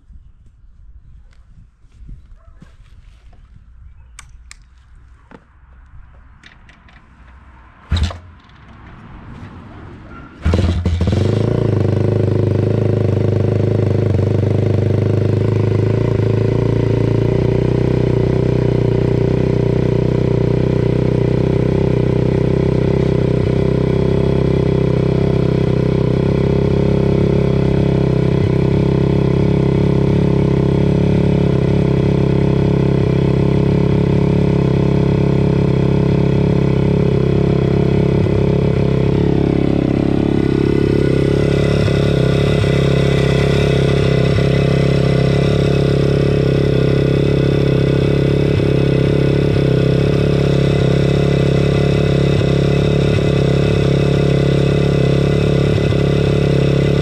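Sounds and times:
kick-start: 7.9 - 9.0, 10.4 - 11.8
motorcycle engine idling: 10.4 - 57.0.

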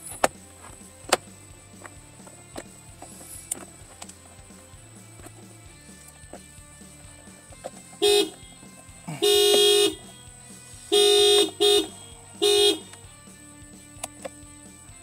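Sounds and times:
car horn blasts: 8.0 - 8.5, 9.2 - 10.2, 10.9 - 12.9.

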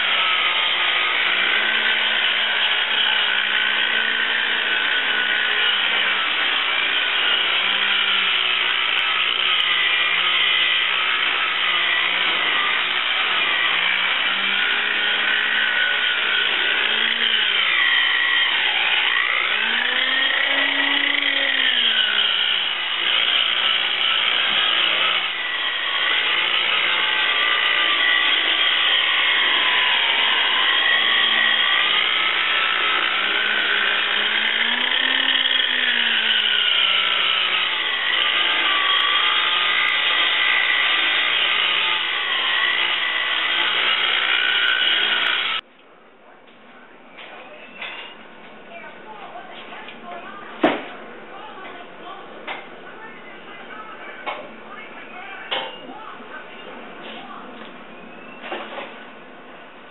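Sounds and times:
electric rotary buffer running: 0.0 - 45.6.

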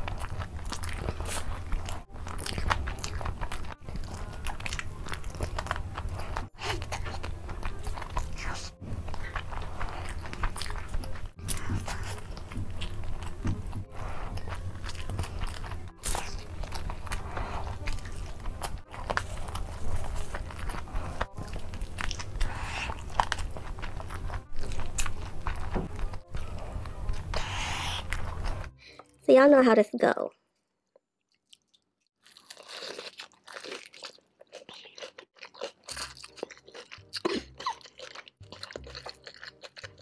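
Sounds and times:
crunching and chewing fried chicken: 0.0 - 28.7, 30.9 - 40.0
crackly mouth sounds: 33.4 - 40.0.

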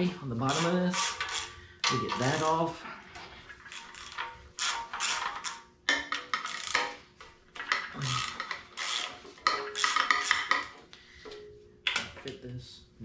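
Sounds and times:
socket ratchet cranking: 0.4 - 2.6, 3.6 - 7.0, 7.6 - 10.8.

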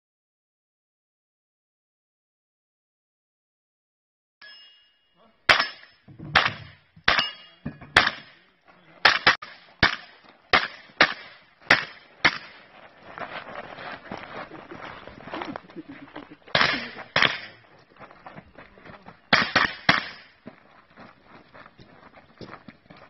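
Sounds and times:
firearm shots: 5.5 - 8.4, 9.0 - 12.6, 16.5 - 17.5, 19.3 - 20.3.

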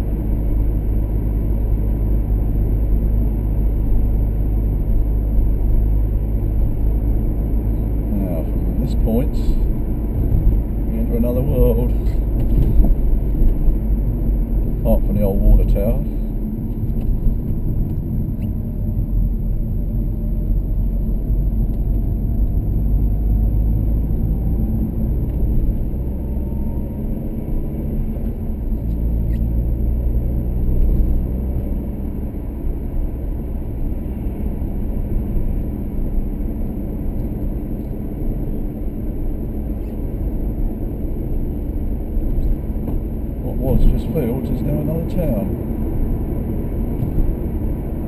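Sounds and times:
engine and road rumble: 0.0 - 48.0.

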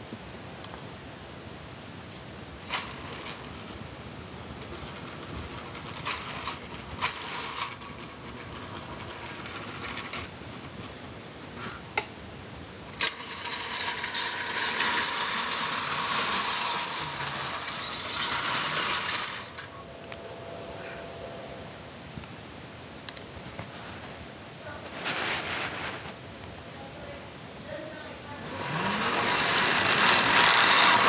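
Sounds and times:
toy train running on metal track: 2.6 - 3.8, 4.6 - 11.0, 12.9 - 19.8, 28.4 - 31.0.

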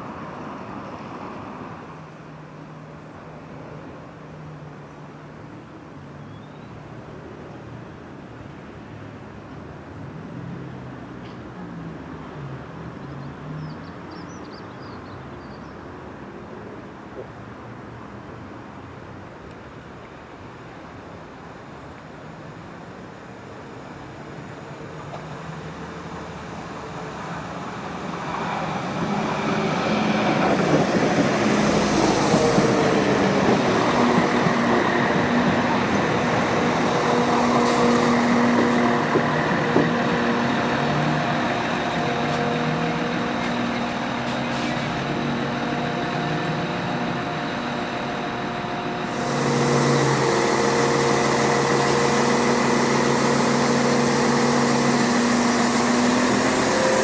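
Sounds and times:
diesel train engine: 18.6 - 57.0
train wheels on rails: 26.1 - 57.0.

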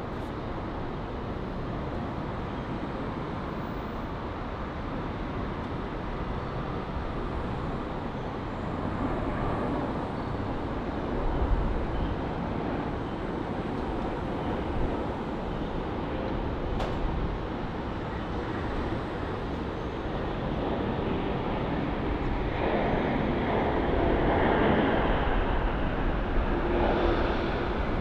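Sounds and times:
jet engine rumble: 0.0 - 28.0.

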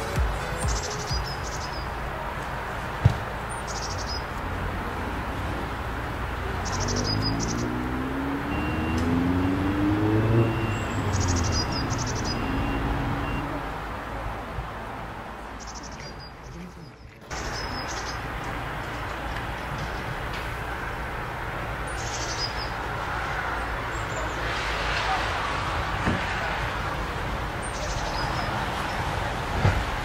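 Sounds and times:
steady outdoor rush: 0.0 - 30.0
distant vehicle engine speeding up: 4.4 - 13.8.

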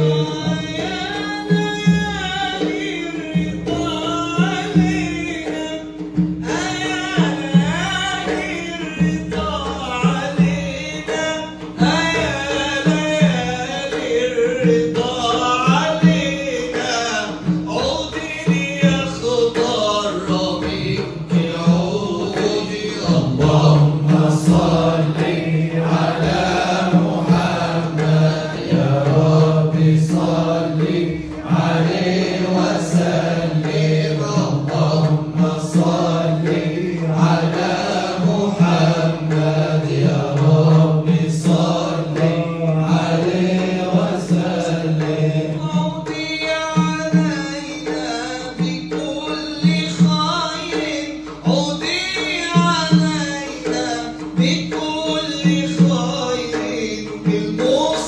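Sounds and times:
men chanting: 0.0 - 10.8, 18.6 - 46.0
steady held drone: 20.7 - 45.6.

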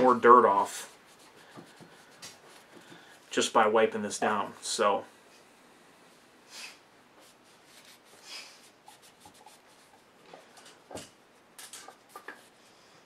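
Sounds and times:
cloth rubbing on metal: 7.2 - 10.2.

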